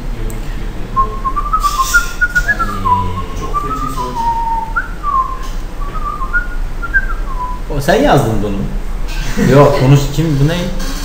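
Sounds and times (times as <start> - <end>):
person whistling a tune: 1.0 - 7.6.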